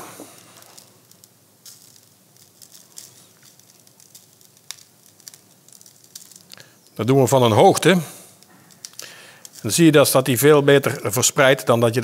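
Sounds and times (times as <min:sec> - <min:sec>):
spice rub pattering on meat: 0:00.1 - 0:10.6
small ticks of hands handling birds: 0:00.4 - 0:07.0.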